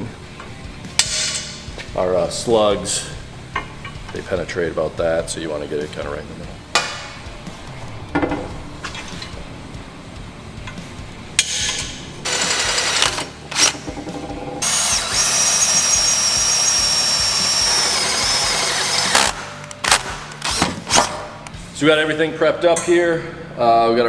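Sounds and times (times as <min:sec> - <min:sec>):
electric drill squealing through steel: 0:14.6 - 0:19.4.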